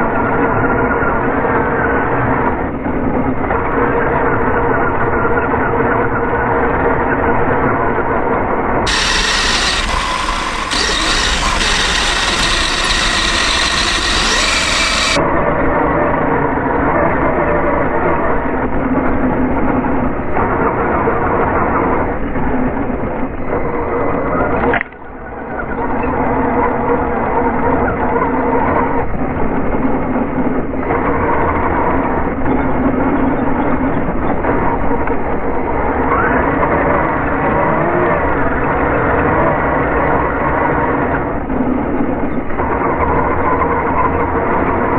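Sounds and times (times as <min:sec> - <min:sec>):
rc car motor running: 0:08.9 - 0:15.2.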